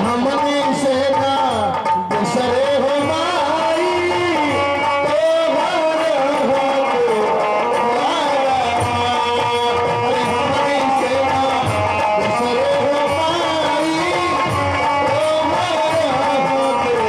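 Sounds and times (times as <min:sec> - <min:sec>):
live folk band music: 0:00.0 - 0:17.0
plucked string instrument: 0:00.0 - 0:17.0.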